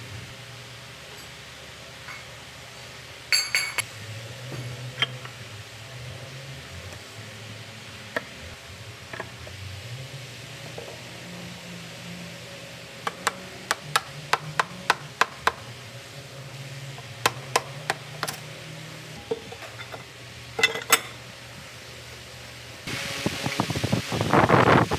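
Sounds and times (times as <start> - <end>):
steady low hum: 0.0 - 24.9
stick tapping on metal housing: 13.0 - 15.6.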